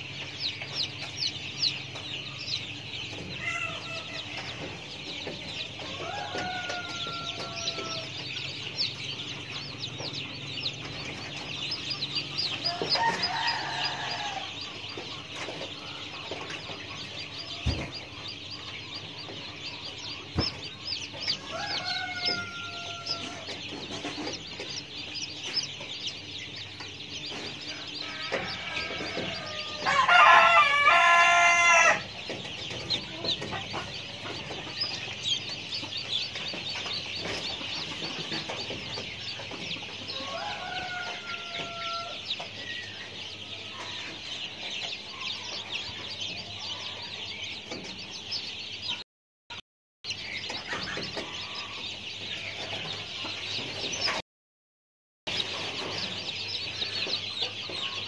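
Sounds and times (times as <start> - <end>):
rooster crowing: 3.3 - 4.6, 5.8 - 8.4, 12.5 - 14.8, 21.3 - 23.7, 27.7 - 32.1, 40.1 - 42.4.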